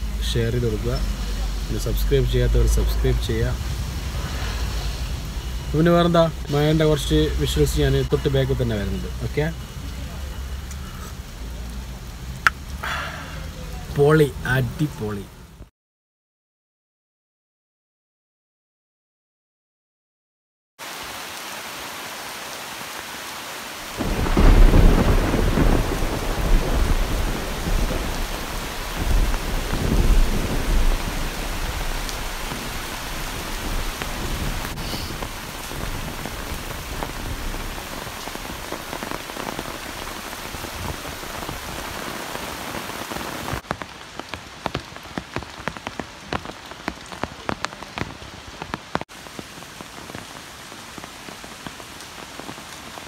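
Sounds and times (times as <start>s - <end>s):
raindrops pattering on leaves: 0.0s - 15.3s, 20.8s - 53.0s
heavy rain falling: 0.0s - 15.7s, 20.8s - 53.0s
thunder rumbling: 23.8s - 43.6s.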